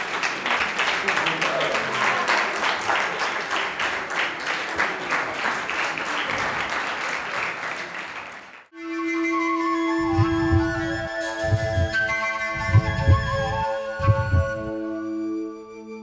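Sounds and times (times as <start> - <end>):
crowd clapping in rhythm: 0.0 - 8.8, 12.6 - 14.6
flute-like melody: 8.8 - 16.0
soft low pulses: 10.0 - 14.8.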